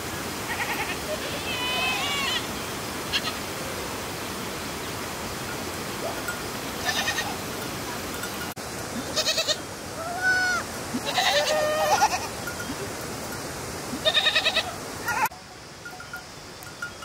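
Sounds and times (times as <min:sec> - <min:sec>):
steady outdoor hiss: 0:00.0 - 0:17.0
goats bleating: 0:00.5 - 0:02.5, 0:06.8 - 0:07.4, 0:09.0 - 0:12.4, 0:14.0 - 0:15.3.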